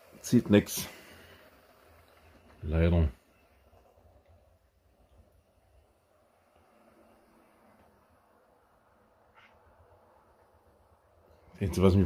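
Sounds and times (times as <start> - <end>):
faint squeak: 9.3 - 9.9.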